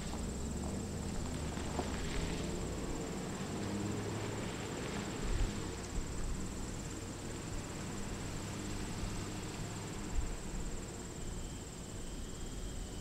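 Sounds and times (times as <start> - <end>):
bus engine rumble: 0.0 - 13.0
high-pitched insect chorus: 6.1 - 13.0.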